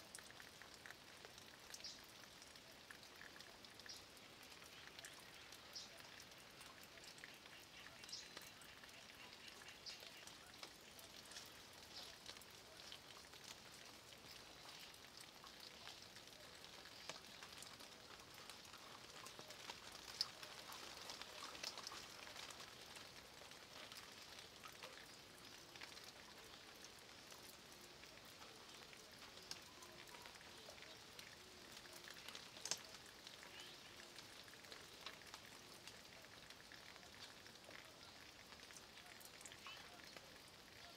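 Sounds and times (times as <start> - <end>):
light rain pattering: 0.0 - 40.9
water drips: 0.0 - 40.9.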